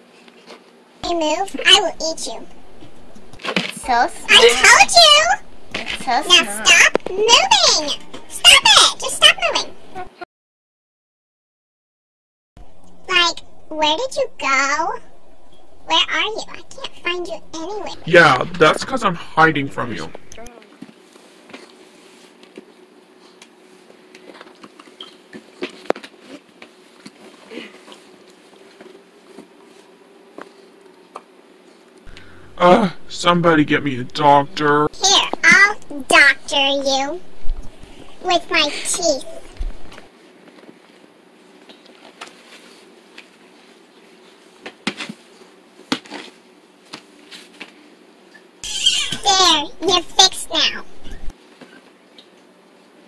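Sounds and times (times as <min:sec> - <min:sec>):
faint steady hum: 0:00.0 - 0:10.1, 0:12.6 - 0:53.0.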